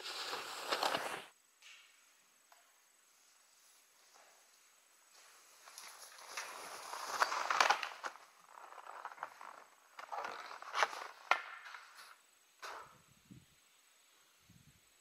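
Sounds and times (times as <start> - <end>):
skier crashing into snow: 0.0 - 1.3
skis hissing through powder snow: 0.0 - 1.4, 5.2 - 12.3.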